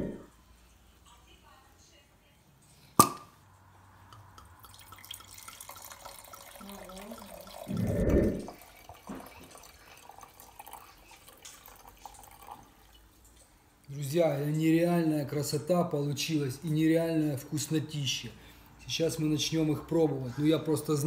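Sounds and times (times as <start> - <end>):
wine pouring into a glass: 4.6 - 13.2.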